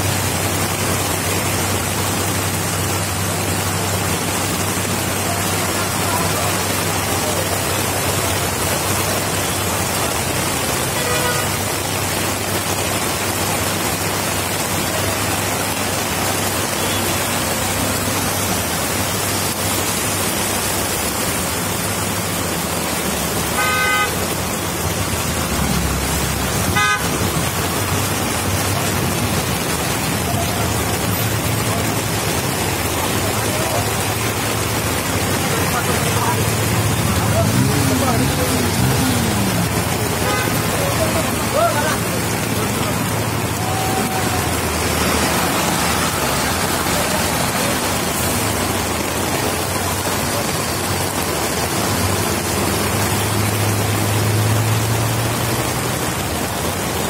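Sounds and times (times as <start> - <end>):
heavy rain: 0.0 - 57.0
road traffic: 0.0 - 57.0
vehicle horns tooting: 10.9 - 11.6, 23.6 - 24.3, 26.6 - 27.2, 40.2 - 41.2.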